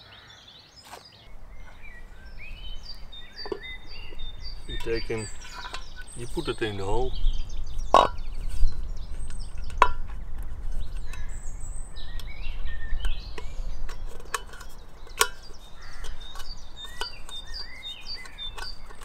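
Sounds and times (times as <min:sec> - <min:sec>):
small birds chirping: 0:00.0 - 0:19.0
low steady rumble: 0:01.3 - 0:06.3, 0:07.1 - 0:17.6
metal clicks and taps: 0:13.1 - 0:19.0.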